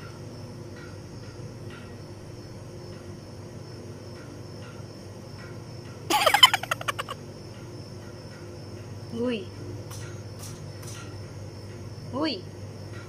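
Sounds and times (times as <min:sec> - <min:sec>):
parrot call: 0:06.1 - 0:07.2.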